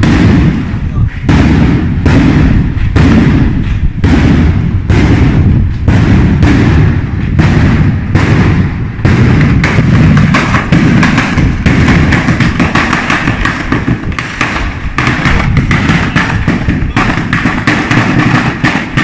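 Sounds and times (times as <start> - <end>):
firecracker chain banging: 9.7 - 19.0.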